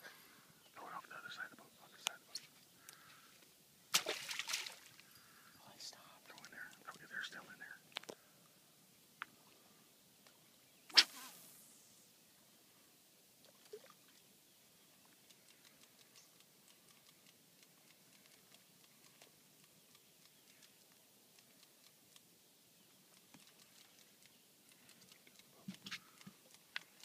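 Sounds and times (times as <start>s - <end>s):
faint irregular ticks: 0.0s - 3.6s, 5.0s - 8.6s, 12.5s - 27.0s.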